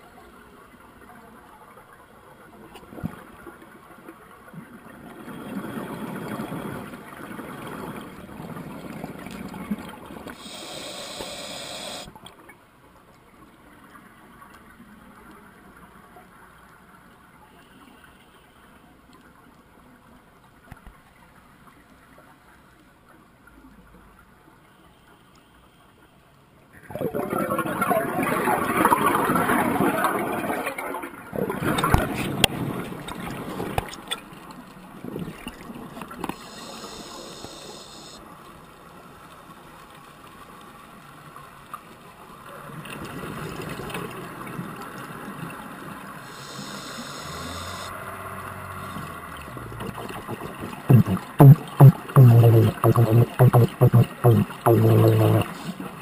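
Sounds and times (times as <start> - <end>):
underwater breath bubbling: 10.3 - 12.1, 36.3 - 38.2, 46.2 - 47.9, 49.4 - 56.0.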